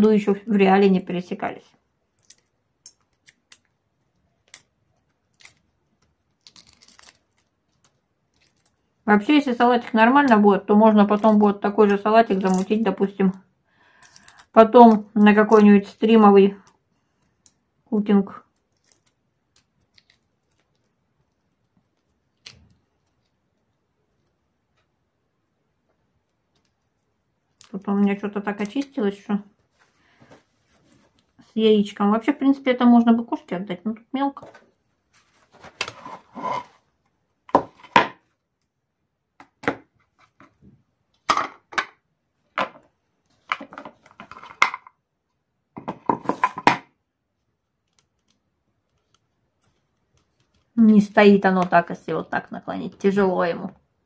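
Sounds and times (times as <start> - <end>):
eggshell cracking: 13.9 - 15.6.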